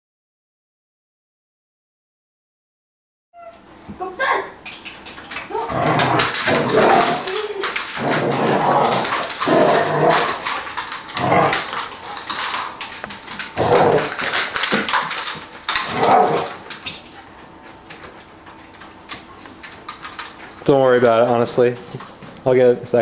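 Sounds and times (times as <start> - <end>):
dogs growling and barking: 4.7 - 20.6.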